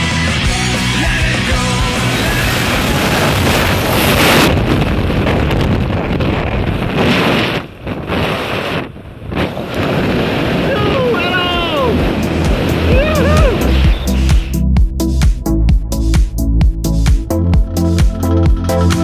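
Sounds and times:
wind rushing over microphone: 0.6 - 17.8.

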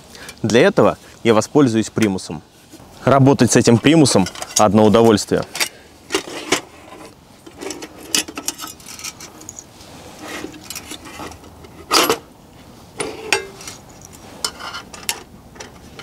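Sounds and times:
metal clinks and clanks: 4.0 - 6.3, 7.4 - 9.7, 10.4 - 12.2, 13.0 - 16.0.

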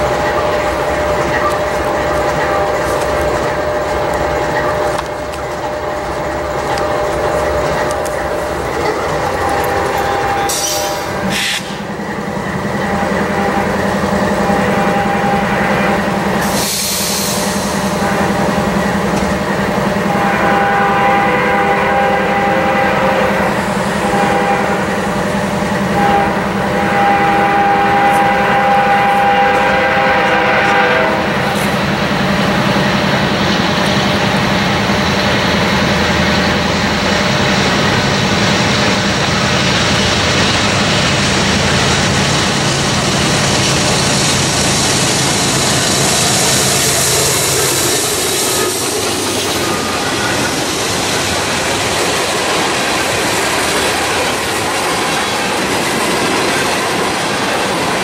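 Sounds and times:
diesel locomotive engines rumbling: 0.0 - 58.0
freight train horn: 8.8 - 12.0, 12.7 - 31.8.

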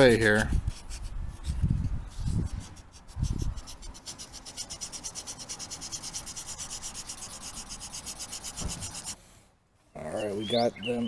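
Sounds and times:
sanding wood rasping strokes: 2.1 - 9.2.

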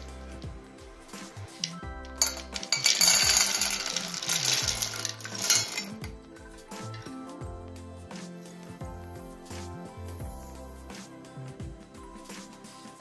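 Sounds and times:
soft background music: 0.0 - 13.0
frozen berries clattering in metal pan: 1.6 - 6.1.

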